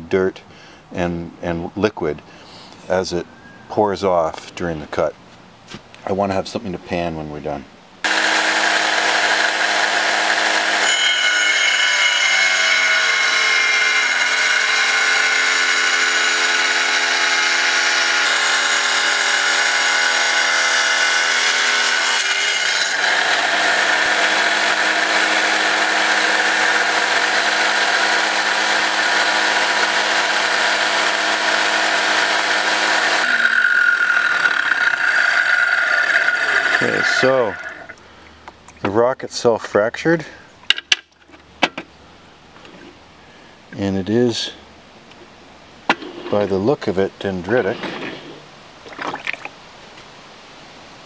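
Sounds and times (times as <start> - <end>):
tile saw grinding rock: 8.0 - 38.0.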